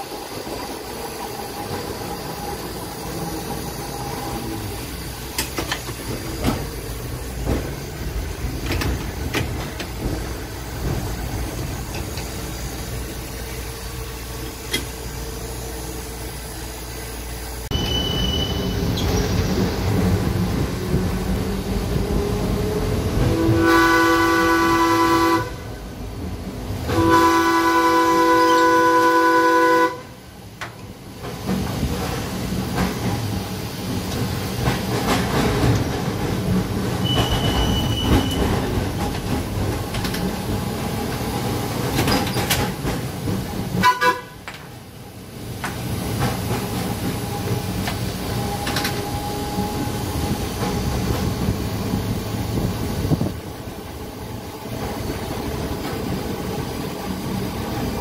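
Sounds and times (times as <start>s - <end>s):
streetcar rumbling on rails: 0.0s - 58.0s
streetcar horn blasts: 23.2s - 25.8s, 26.9s - 30.2s, 43.8s - 44.6s
wheels clicking over track: 33.9s - 44.8s.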